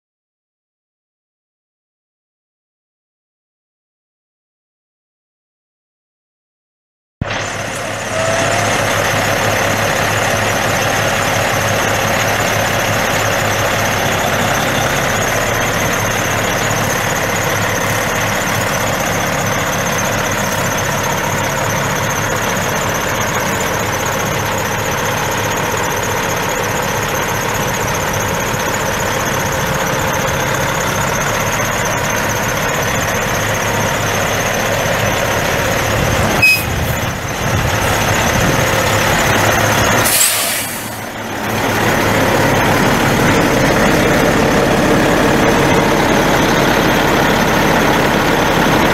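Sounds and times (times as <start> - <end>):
diesel truck engine idling: 7.2 - 48.9
high-pitched whine: 36.4 - 39.0.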